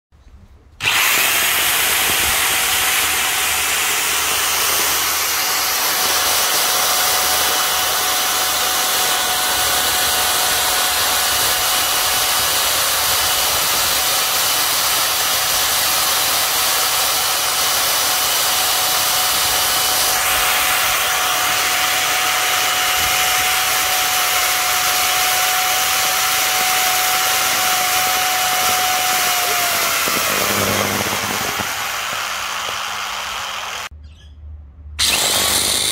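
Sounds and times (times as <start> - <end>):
electric jigsaw motor whining: 0.8 - 33.9, 35.0 - 35.9.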